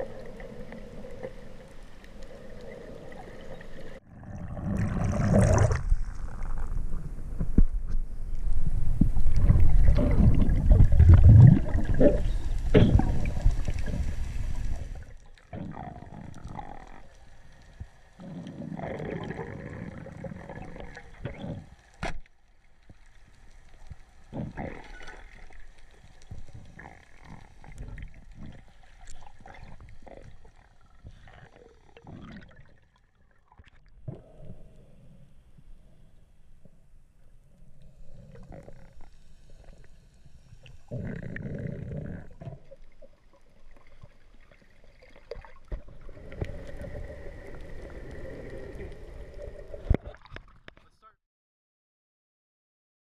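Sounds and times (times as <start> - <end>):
water rushing and sloshing: 8.3 - 15.4, 42.3 - 50.4.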